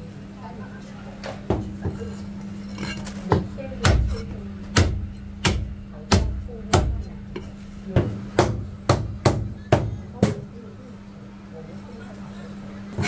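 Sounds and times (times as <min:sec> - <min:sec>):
steady low hum: 0:00.0 - 0:13.0
cleaver chopping on cutting board: 0:03.3 - 0:10.4.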